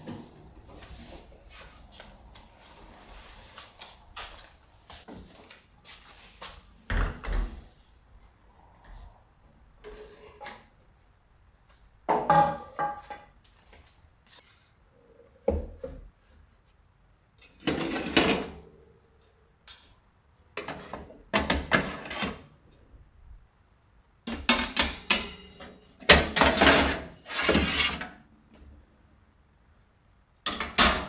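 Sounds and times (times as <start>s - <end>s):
wire rack scraping and clattering: 17.4s - 18.7s, 24.3s - 28.2s.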